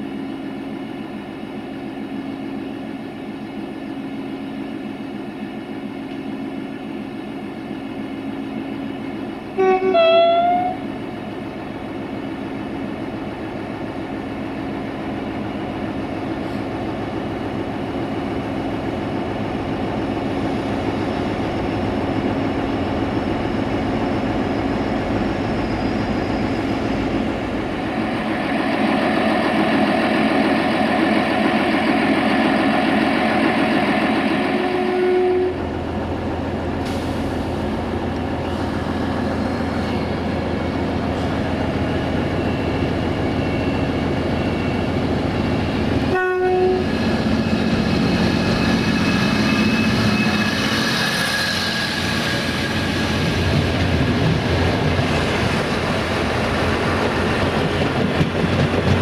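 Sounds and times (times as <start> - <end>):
railcar engine and wheel noise: 0.0 - 59.0
train horn toot: 9.6 - 10.9, 34.6 - 35.6, 46.1 - 46.9.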